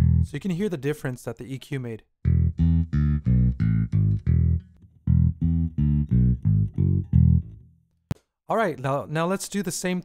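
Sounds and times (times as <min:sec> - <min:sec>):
plucked bass guitar line: 0:00.0 - 0:00.4, 0:02.2 - 0:07.7.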